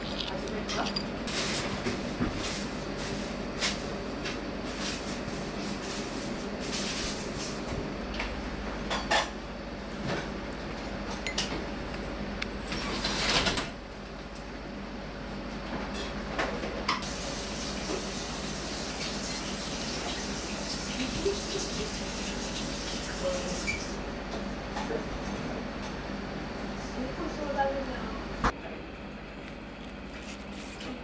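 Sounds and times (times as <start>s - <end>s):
tableware clicking and knocking: 0.7s - 1.1s
background hum: 25.8s - 31.0s.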